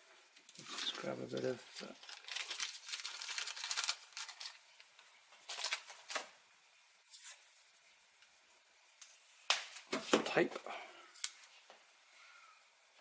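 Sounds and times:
tape ripping: 0.6s - 4.6s.

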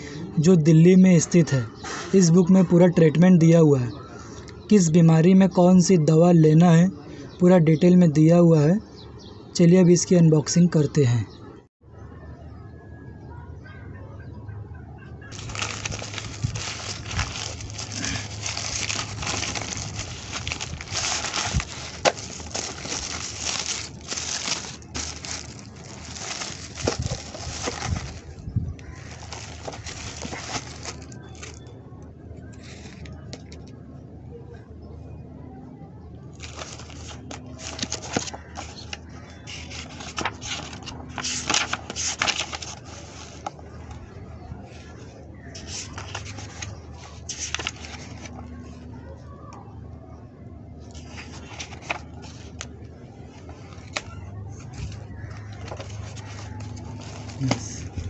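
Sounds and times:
book pages rustling: 15.3s - 31.7s, 32.5s - 33.7s, 36.4s - 44.2s, 44.8s - 48.9s, 50.8s - 58.0s
plastic mailer bag crinkling: 15.3s - 31.7s, 36.4s - 43.6s, 51.0s - 52.6s, 53.4s - 58.0s.

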